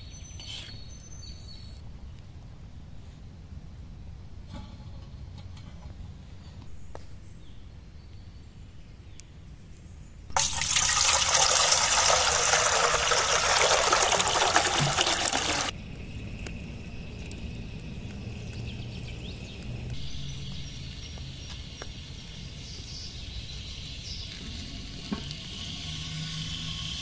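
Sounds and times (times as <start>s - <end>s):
water pouring into metal pot: 10.3s - 15.7s.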